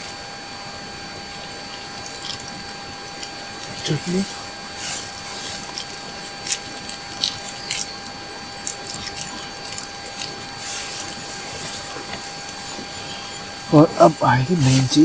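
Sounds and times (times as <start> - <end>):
background hiss: 10.6 - 15.0.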